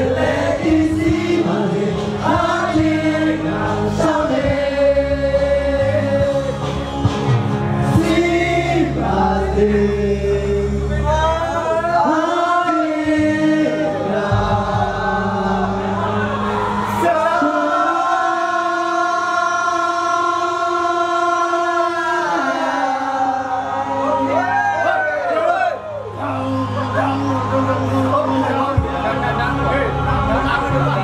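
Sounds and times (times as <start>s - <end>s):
men singing together: 0.0s - 7.2s, 7.8s - 24.5s
backing track music: 0.0s - 31.0s.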